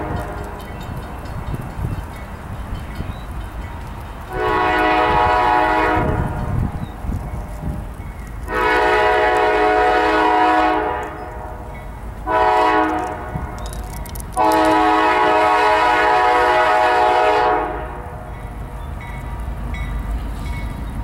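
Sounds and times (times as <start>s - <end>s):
locomotive air horn blasts: 0.0s - 0.6s, 4.3s - 6.6s, 8.5s - 13.6s, 14.4s - 18.2s
freight train rumble: 0.0s - 21.0s.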